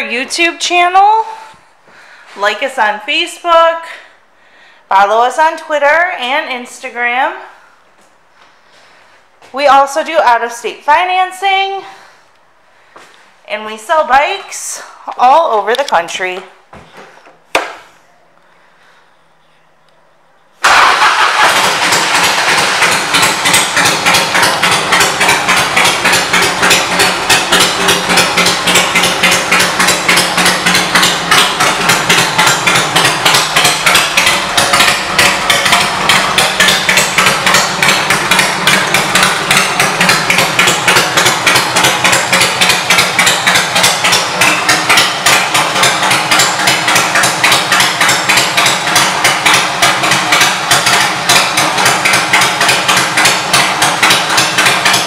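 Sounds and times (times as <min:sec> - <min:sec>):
motorcycle engine idling: 0:20.7 - 0:55.0.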